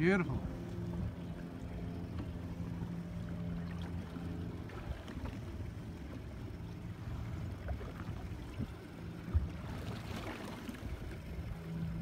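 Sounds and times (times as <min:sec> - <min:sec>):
faint low motor hum: 0:00.0 - 0:12.0
water lapping against hull: 0:00.0 - 0:12.0.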